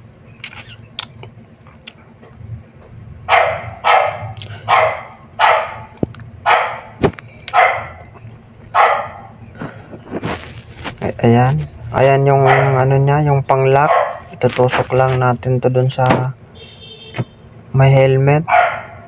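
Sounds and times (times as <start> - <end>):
dog barking: 3.3 - 8.1, 8.7 - 9.4, 12.4 - 12.9, 13.8 - 14.4, 18.5 - 19.0.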